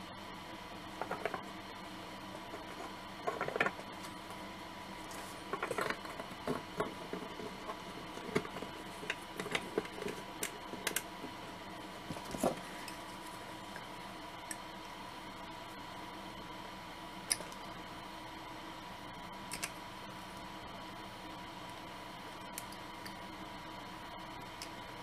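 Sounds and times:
faint steady hum: 0.0s - 25.0s
model parts clicking and tapping: 5.5s - 11.1s.

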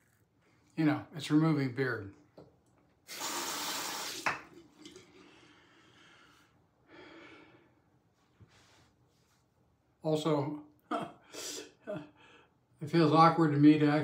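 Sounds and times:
tap water running: 3.0s - 5.5s.

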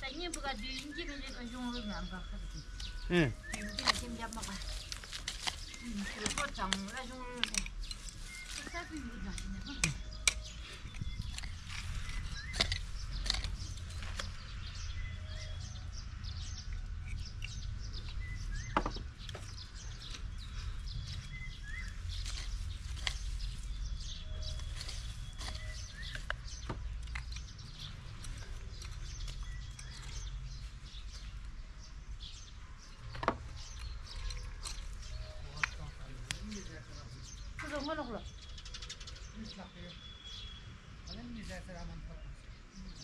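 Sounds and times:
birds chirping: 0.0s - 43.0s
hand hoe digging into soil: 24.4s - 26.4s.

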